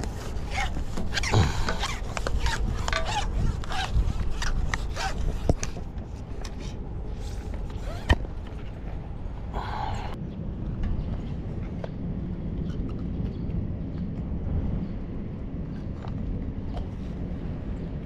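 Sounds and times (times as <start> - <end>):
low rumble: 5.2 - 18.0.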